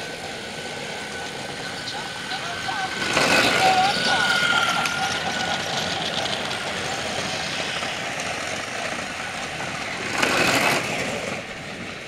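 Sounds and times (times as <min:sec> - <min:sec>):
toy train motors whirring: 0:02.0 - 0:09.1, 0:09.9 - 0:11.3.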